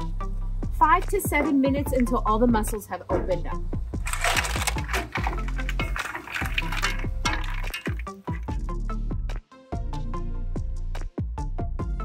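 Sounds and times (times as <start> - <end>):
background music with drum beat: 0.0 - 6.3.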